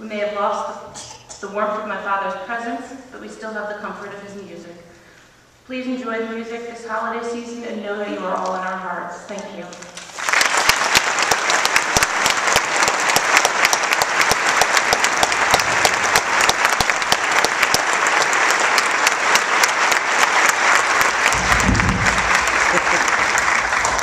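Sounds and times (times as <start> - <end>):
large audience applauding: 9.9 - 24.0.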